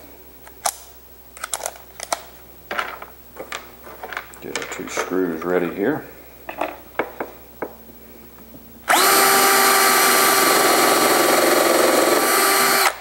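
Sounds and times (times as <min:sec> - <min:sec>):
cordless drill boring into plywood: 0:08.9 - 0:13.0.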